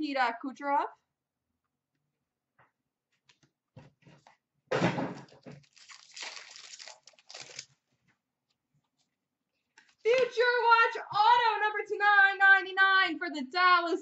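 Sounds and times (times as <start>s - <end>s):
card pack wrapper tearing: 5.3s - 7.8s
wrapper rustling: 5.3s - 8.0s.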